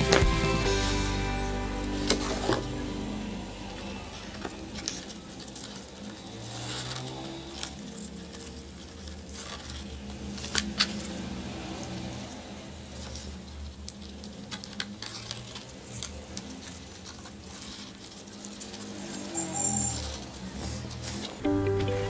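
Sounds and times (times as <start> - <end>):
paper and ribbon rustling: 3.8 - 12.2, 12.9 - 21.4.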